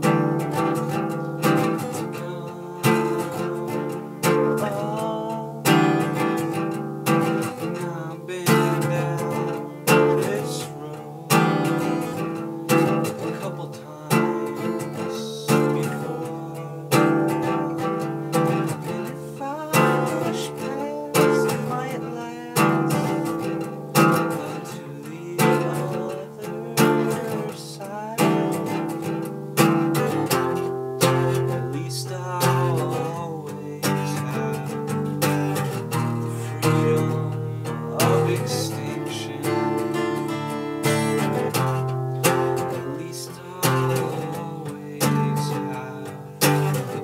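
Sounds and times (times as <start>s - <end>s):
acoustic guitar strummed chords: 0.0s - 47.0s
man singing: 0.0s - 47.0s.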